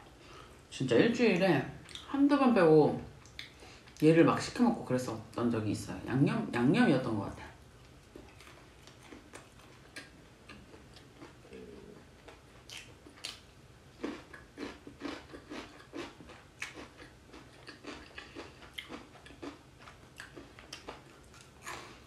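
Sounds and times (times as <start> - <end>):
chewing with wet smacks: 3.2 - 4.0, 7.8 - 13.4, 14.0 - 21.9.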